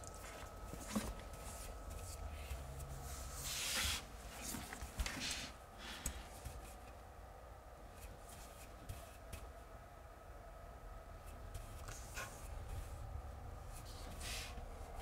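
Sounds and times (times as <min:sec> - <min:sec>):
brush swishing over wallpaper: 0:00.2 - 0:06.9, 0:08.0 - 0:09.5, 0:13.6 - 0:15.0.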